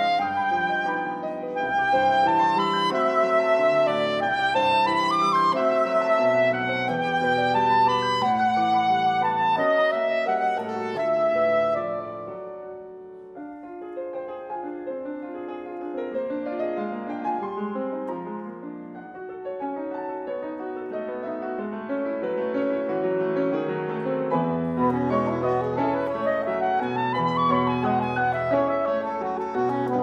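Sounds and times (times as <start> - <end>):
saxophone melody: 0.0 - 12.1, 24.7 - 30.0
grand piano playing: 0.0 - 30.0.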